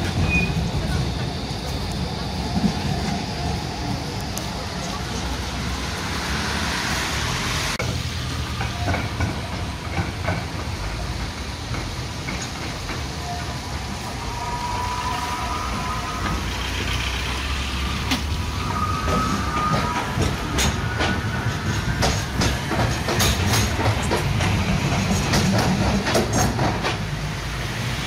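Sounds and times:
traffic on wet street: 0.0 - 28.0
tram rolling: 0.0 - 28.0
tram wheels squealing: 0.0 - 28.0
wheels clicking over rail joints: 7.8 - 27.3.

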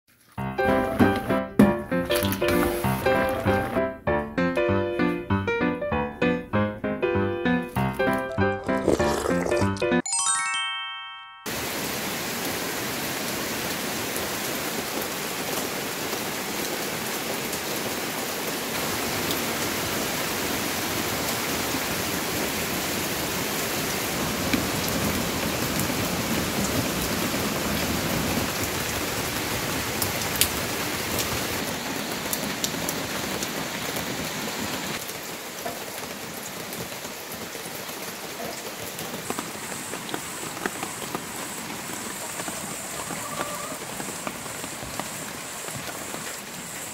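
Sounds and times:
steady rain: 11.5 - 46.9.

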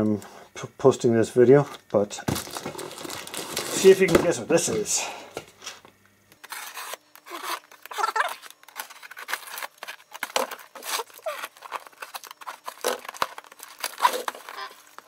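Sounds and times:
plastic wrap scratching and tearing: 1.7 - 4.8, 6.4 - 15.0.

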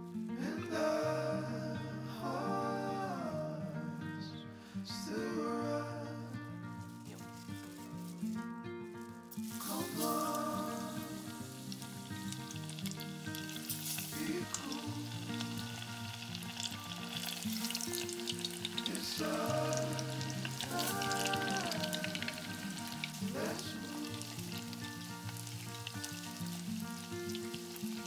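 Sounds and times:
background music melody: 0.0 - 28.0
hot oil sizzling and crackling: 6.9 - 8.4, 9.0 - 28.0.

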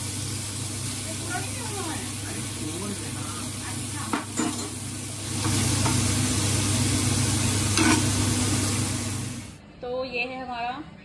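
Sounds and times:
prawns sizzling in oil: 0.0 - 9.6
spatula scraping pan: 7.7 - 8.2.

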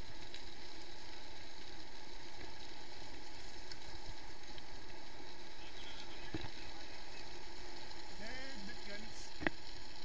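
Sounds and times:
bike tyres rolling over gravel: 0.0 - 9.9
faint clicks: 0.2 - 5.2.

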